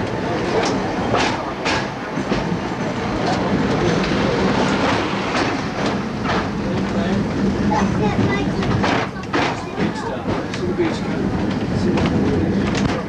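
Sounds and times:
tram rumble and rattle on rails: 0:00.0 - 0:13.0
sharp clacks: 0:00.6 - 0:02.5, 0:08.2 - 0:10.7.

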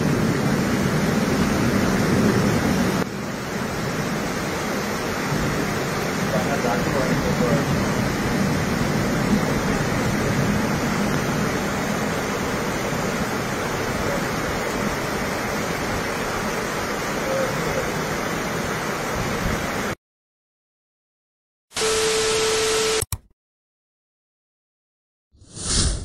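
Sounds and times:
heavy rain and floodwater rushing: 0:00.0 - 0:20.0
steady beep tone: 0:21.8 - 0:23.1
tv static: 0:21.8 - 0:23.2.

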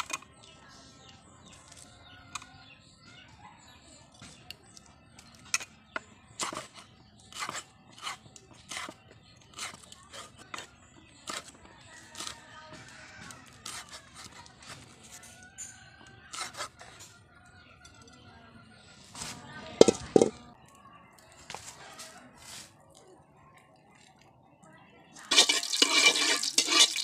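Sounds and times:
knife slicing pepper: 0:06.4 - 0:10.7, 0:25.2 - 0:27.0.

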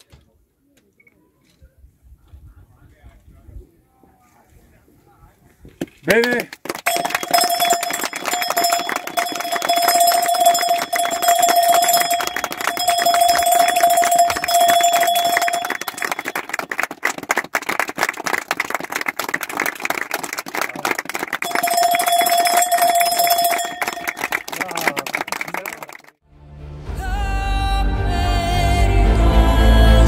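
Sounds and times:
group applauding: 0:06.1 - 0:26.2
bell ringing: 0:06.9 - 0:16.7, 0:21.4 - 0:24.9.

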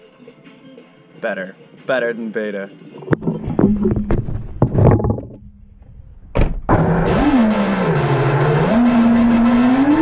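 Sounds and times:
drone motors buzzing whine: 0:06.7 - 0:10.0.

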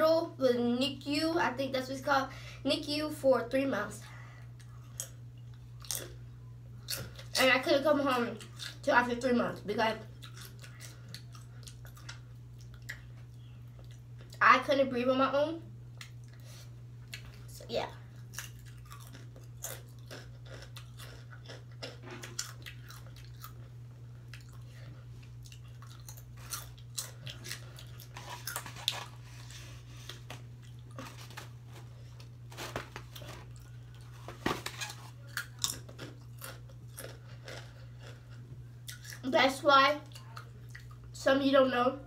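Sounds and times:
chewing crunchy chips: 0:04.6 - 0:07.5, 0:08.1 - 0:09.2, 0:09.9 - 0:14.4, 0:15.9 - 0:39.4, 0:40.0 - 0:41.2.

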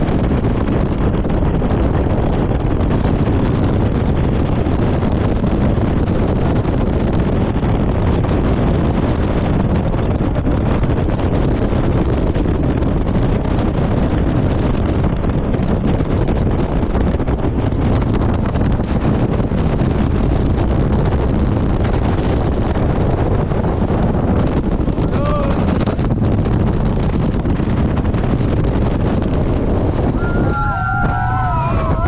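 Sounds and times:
jet boat engines roaring: 0:00.0 - 0:32.0
wind blasting on microphone: 0:00.0 - 0:32.0.

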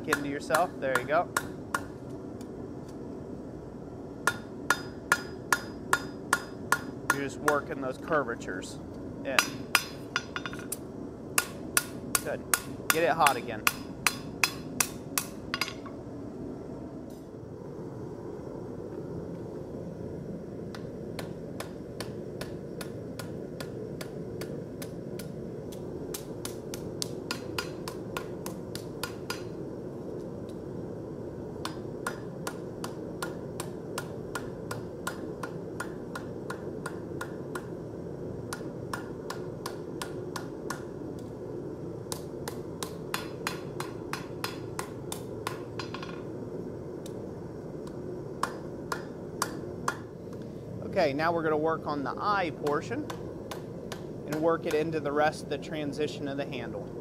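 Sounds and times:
hammer striking hot metal on anvil: 0:00.0 - 0:02.0, 0:04.2 - 0:07.7, 0:09.3 - 0:10.8, 0:11.4 - 0:16.0, 0:20.7 - 0:29.6, 0:31.6 - 0:37.7, 0:38.5 - 0:41.0, 0:42.1 - 0:46.3, 0:47.8 - 0:50.1, 0:52.6 - 0:55.0.

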